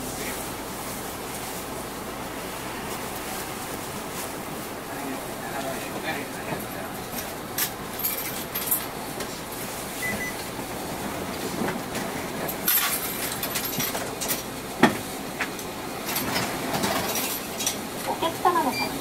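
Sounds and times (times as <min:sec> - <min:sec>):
bus running noise: 0:00.0 - 0:19.0
rattles and clinks from fittings: 0:06.4 - 0:09.0, 0:12.5 - 0:14.5, 0:16.0 - 0:17.8.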